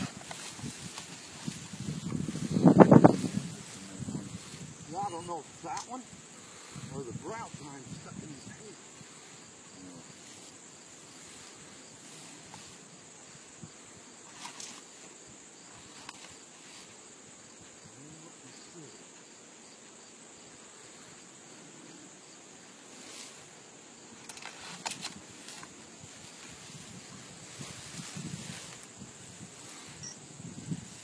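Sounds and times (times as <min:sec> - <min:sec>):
insects chirring: 0:00.0 - 0:31.0
sharp clicks: 0:05.7 - 0:06.0.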